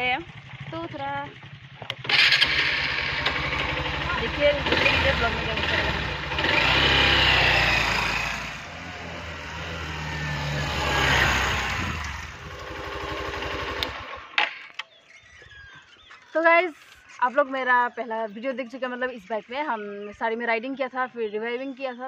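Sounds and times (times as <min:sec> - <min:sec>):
motorcycle engine revving: 0:00.0 - 0:14.7.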